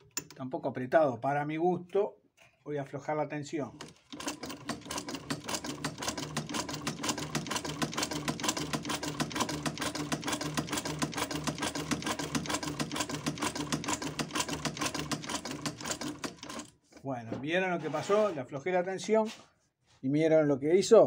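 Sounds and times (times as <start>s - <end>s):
sewing machine needle clicking: 3.8s - 16.7s
sewing machine motor hum: 3.8s - 16.8s.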